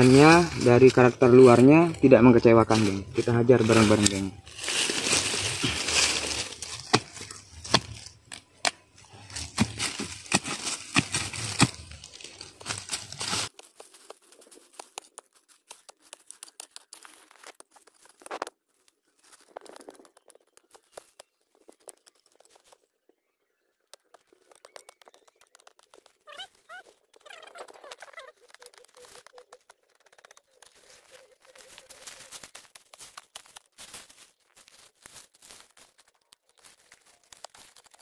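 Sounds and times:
dry stems crackling and tearing: 0.0 - 22.8, 24.0 - 38.0
digging tool chopping into soil: 4.8 - 13.5.

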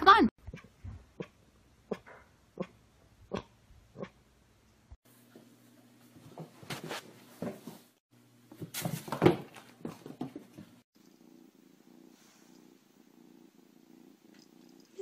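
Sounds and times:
cat scuffling: 6.1 - 10.8
kitten purring: 11.0 - 15.0.

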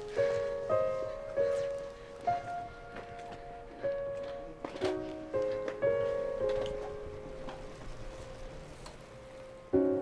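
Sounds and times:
soft piano music: 0.0 - 10.0.

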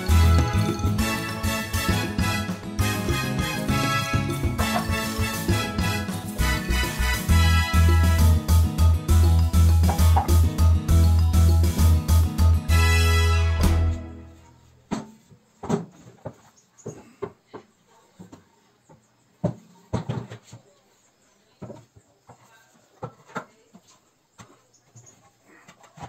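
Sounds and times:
wooden boards knocking together: 14.9 - 17.4.

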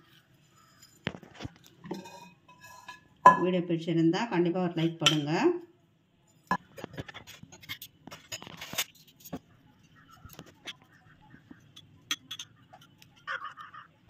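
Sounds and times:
spoons clinking on glass bowls: 11.8 - 12.6.

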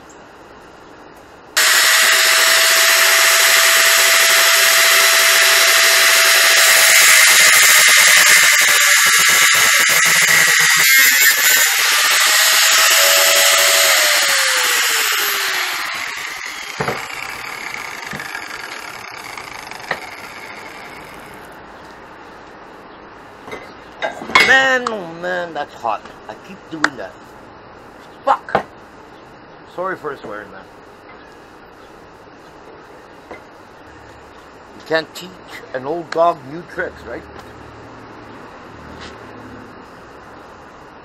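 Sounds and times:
angle grinder cutting steel: 1.6 - 21.4
grinder spinning down: 1.6 - 21.4.

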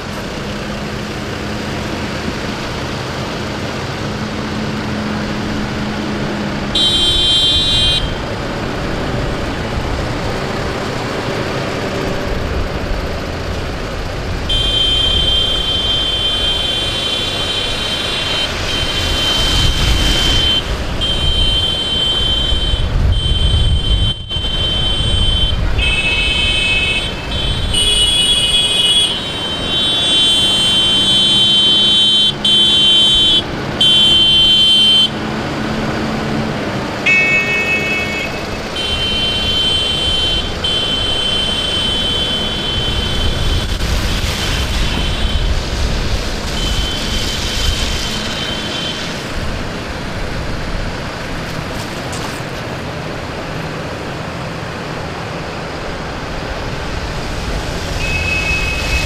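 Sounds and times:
tractor engines driving past: 0.0 - 59.0
vehicle horns blasting: 6.7 - 8.4, 14.4 - 35.3, 37.0 - 45.7, 46.5 - 49.4, 57.9 - 59.0
tyre hiss on wet road: 40.7 - 50.7, 55.6 - 59.0.

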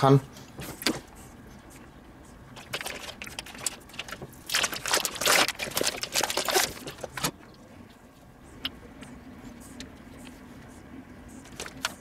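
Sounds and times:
plastic packaging crinkling: 2.6 - 7.3.

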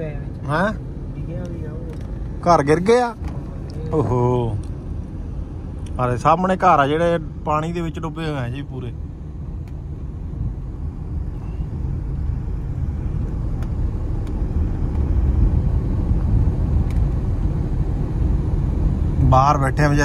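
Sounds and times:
road noise: 0.0 - 20.0
vehicle engine rumble: 0.0 - 20.0.

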